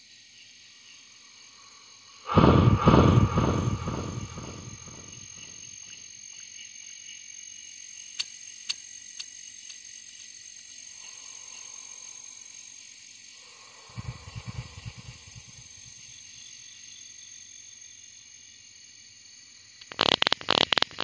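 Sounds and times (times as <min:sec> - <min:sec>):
crickets chirring: 0:00.0 - 0:21.0
loud pulsing low rumble: 0:02.3 - 0:05.2, 0:13.9 - 0:15.9
sharp clicks: 0:19.8 - 0:21.0.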